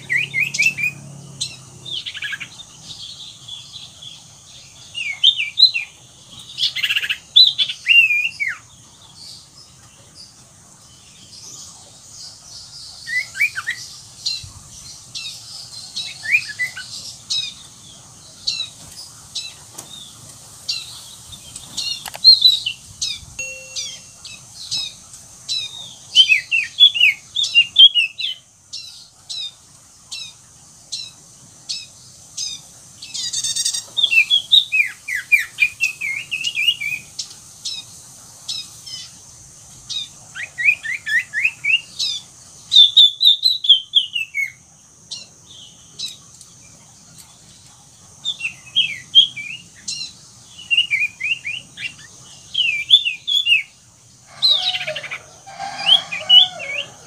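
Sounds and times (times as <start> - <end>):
harsh buzzy bird call: 0.0 - 2.9, 33.1 - 37.0, 54.3 - 57.0
bird singing whistled chirps: 23.4 - 25.0, 33.2 - 37.0, 48.3 - 53.7.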